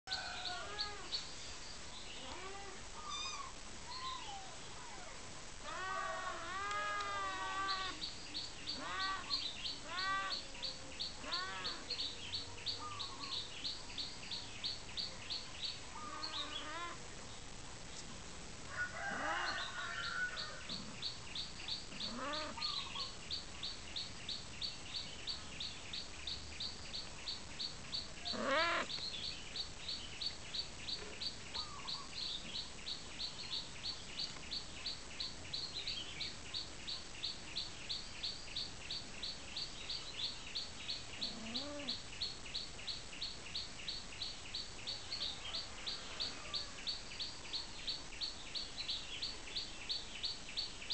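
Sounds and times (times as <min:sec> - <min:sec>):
cat mewing: 0:28.3 - 0:28.9.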